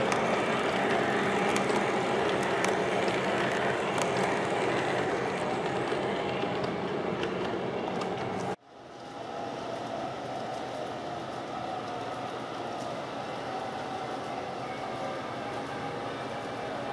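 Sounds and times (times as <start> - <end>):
sharp track clicks: 0.0 - 8.6
model train wheels rumbling on track: 0.0 - 16.9.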